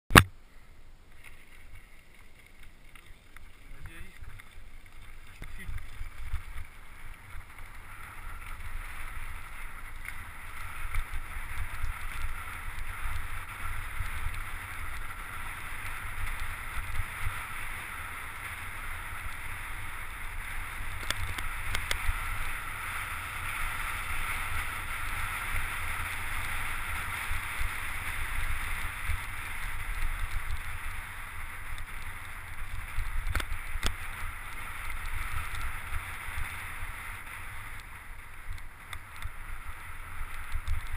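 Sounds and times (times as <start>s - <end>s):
tyres rolling on gravel: 1.1s - 40.9s
bike clicks and knocks: 20.9s - 22.1s, 32.9s - 34.1s.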